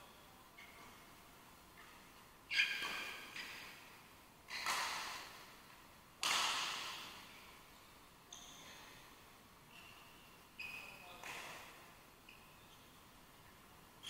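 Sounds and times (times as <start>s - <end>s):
racket hitting shuttlecock: 4.5s - 5.4s, 6.2s - 7.3s.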